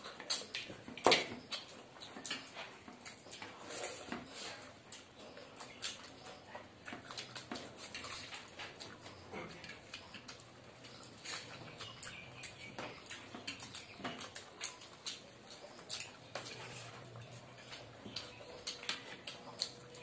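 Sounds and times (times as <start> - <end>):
chewing and wet mouth smacks: 0.0 - 20.0.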